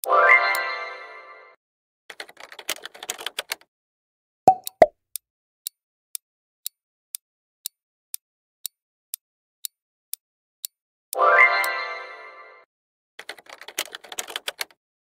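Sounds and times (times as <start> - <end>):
clock ticking: 4.5 - 11.2.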